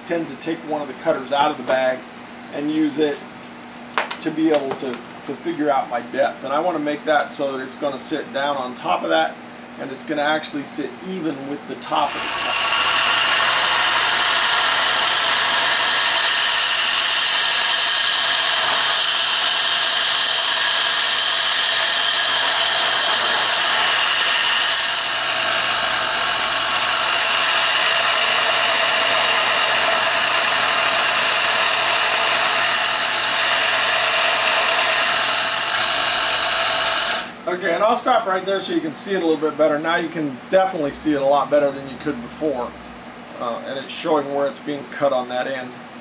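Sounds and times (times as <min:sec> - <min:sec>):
belt sander grinding steel: 0:11.8 - 0:37.4.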